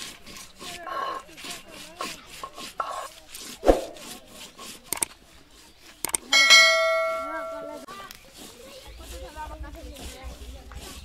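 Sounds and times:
stone roller scraping on stone slab: 0.0 - 11.0
clicks: 4.9 - 5.2, 6.0 - 6.3
bright ringing chime: 6.4 - 7.8.

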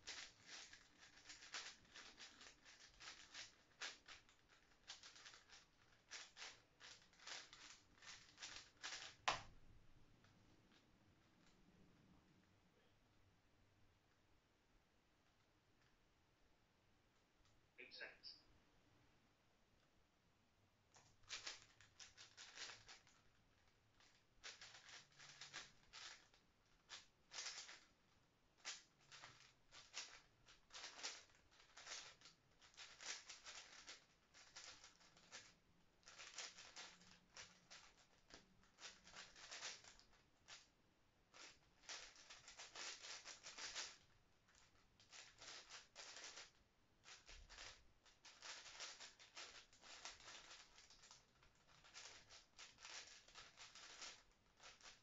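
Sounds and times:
speed cube clicking: 0.0 - 9.6, 21.0 - 23.2, 24.0 - 27.8, 28.6 - 35.5, 36.1 - 40.6, 41.4 - 44.0, 45.0 - 55.0.

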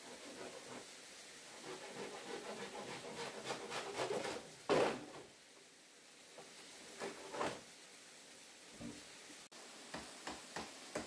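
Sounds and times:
scraping and rubbing strokes: 0.0 - 4.8.

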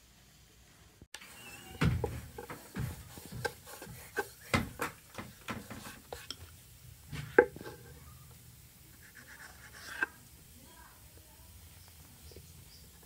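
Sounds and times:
rolling pin and knife on wooden board: 1.6 - 6.5, 7.1 - 7.9, 9.0 - 10.2.

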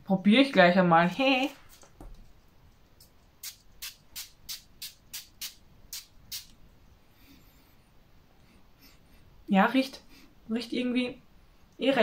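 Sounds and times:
spray bottle hissing: 3.4 - 6.5.

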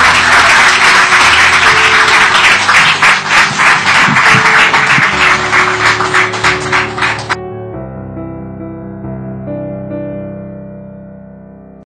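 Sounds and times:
audience applauding: 0.0 - 7.4
soft background music: 0.0 - 11.5.

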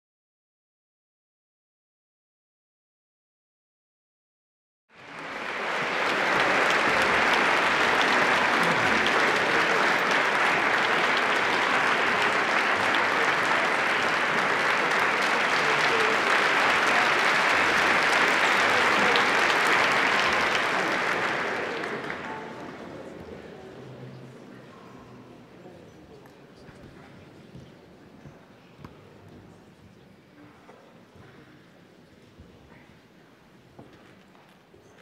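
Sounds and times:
audience applauding: 5.0 - 23.7.

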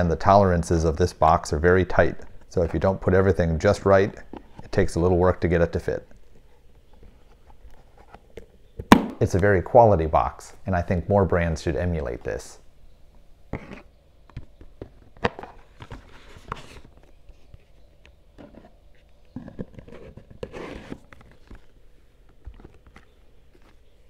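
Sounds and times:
card scraping: 18.4 - 24.0.

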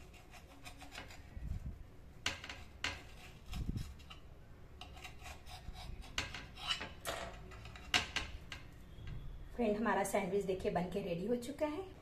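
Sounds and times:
knife sawing through toasted sandwich: 0.0 - 1.2, 4.9 - 6.8.

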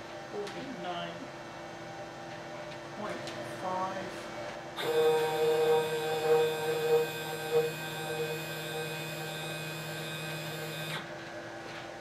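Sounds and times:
stepper motor whine: 4.8 - 11.1.

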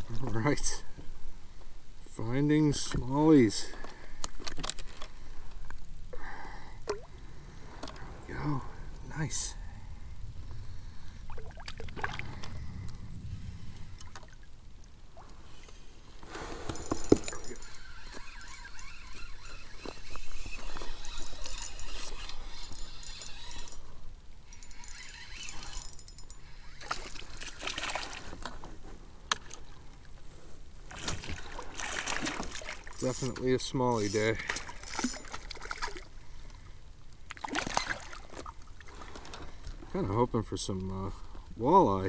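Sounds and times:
water splashing and trickling: 10.5 - 12.8, 13.6 - 23.8, 24.5 - 28.6, 30.9 - 36.7, 37.3 - 39.6.

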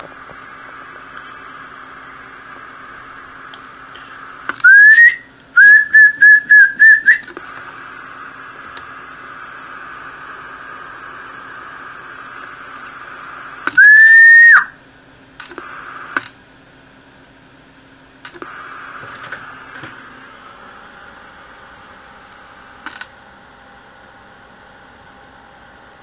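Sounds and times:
radio receiver hiss: 0.0 - 4.8, 5.9 - 14.6, 15.4 - 16.4, 18.2 - 21.7.

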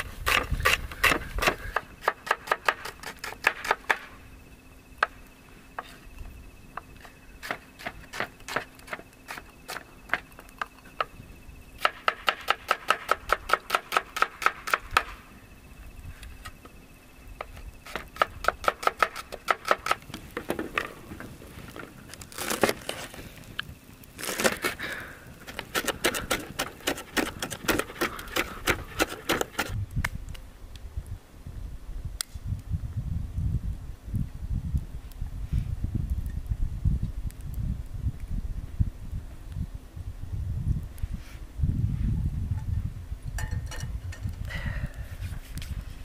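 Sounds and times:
pestle scraping in a mortar: 25.4 - 29.8.

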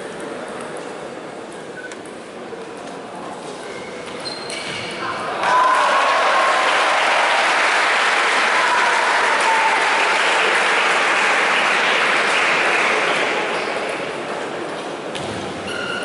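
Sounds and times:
spectators clapping and cheering: 5.3 - 14.3.

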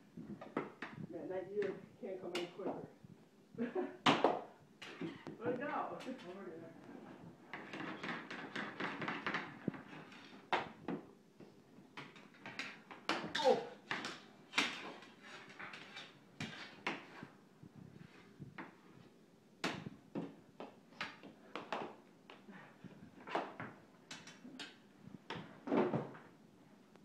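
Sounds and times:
hockey sticks and ball clacking: 7.5 - 11.0, 12.0 - 17.3, 19.6 - 22.5.

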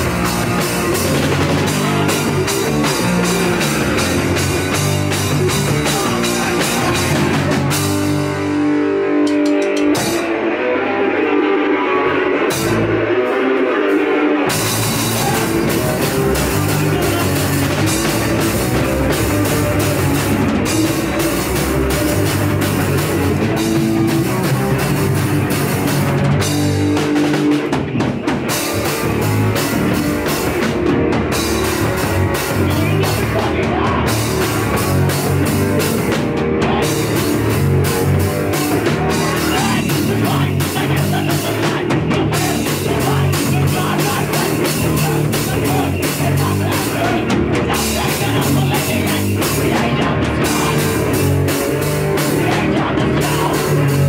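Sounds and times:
fast drums and cymbals: 0.0 - 8.5, 14.5 - 54.0
punk band playing live: 0.0 - 54.0.

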